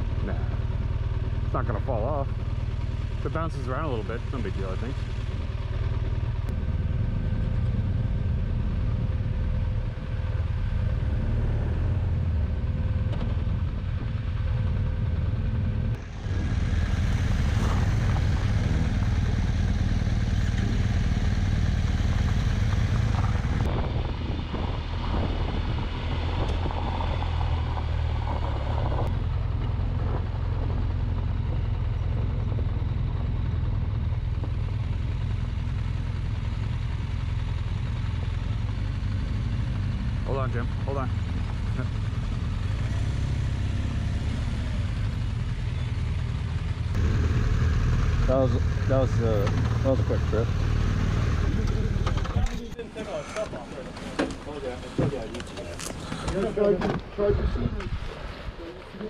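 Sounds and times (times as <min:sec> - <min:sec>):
motorcycle engine rumble: 0:00.0 - 0:59.0
wind noise: 0:22.5 - 0:29.1, 0:57.0 - 0:58.6
tyres on gravel: 0:51.5 - 0:59.0.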